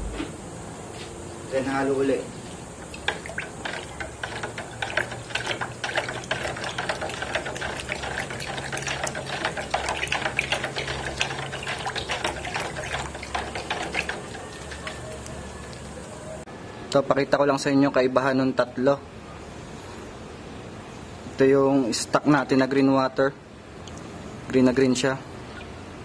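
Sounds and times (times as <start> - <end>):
water sloshing: 2.4 - 16.4
stick rattling in plastic bottle: 3.0 - 15.8.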